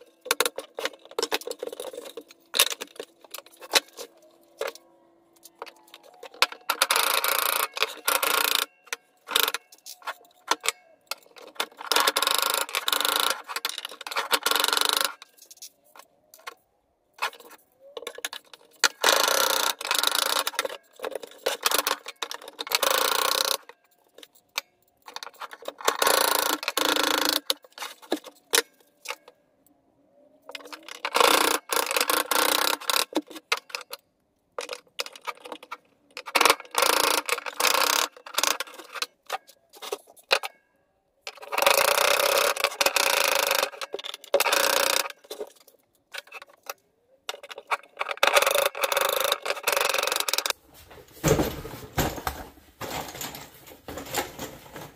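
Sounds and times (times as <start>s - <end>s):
materials rustling and clattering: 0.0s - 19.0s, 41.3s - 54.9s.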